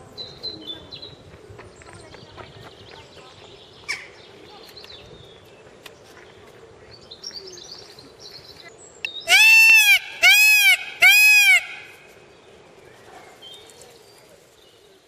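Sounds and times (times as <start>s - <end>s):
peacock calling: 9.2s - 12.2s.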